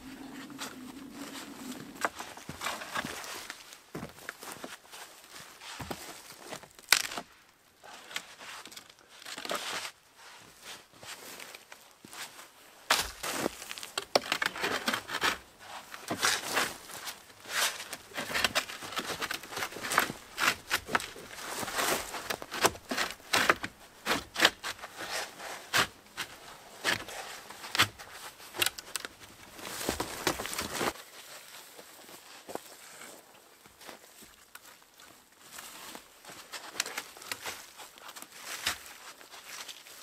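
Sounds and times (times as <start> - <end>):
branches and snow rustling and crunching: 0.0 - 40.0
sharp cracks and snaps: 6.8 - 7.3.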